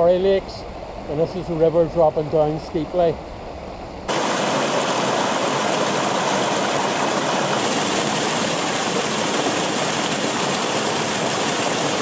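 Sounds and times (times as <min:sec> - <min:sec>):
water splashing over rocks: 0:04.1 - 0:12.0.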